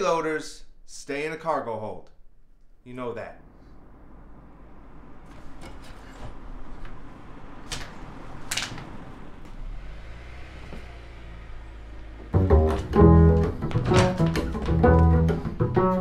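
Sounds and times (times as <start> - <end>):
car engine running: 3.4 - 15.9
window blinds rattling: 5.3 - 9.4
plucked double bass music: 12.3 - 16.0.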